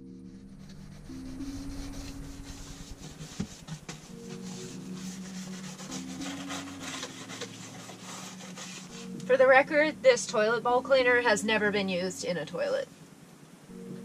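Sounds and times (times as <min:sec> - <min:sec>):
background music with held notes: 0:00.0 - 0:14.0
brush scrubbing wooden paneling: 0:00.7 - 0:09.2.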